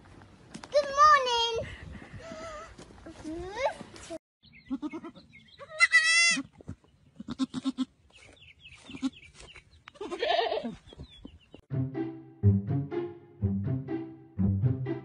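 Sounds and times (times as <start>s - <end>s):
goat kid bleating: 4.6s - 6.6s, 7.2s - 8.0s, 8.8s - 9.2s, 9.9s - 10.8s.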